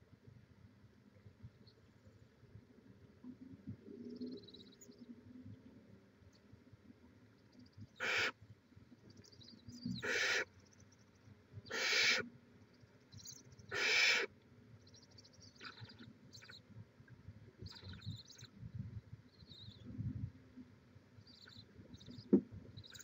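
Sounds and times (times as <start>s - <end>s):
owlets hissing screech calls: 8.0s - 8.3s, 10.0s - 10.5s, 11.7s - 12.3s, 13.7s - 14.3s.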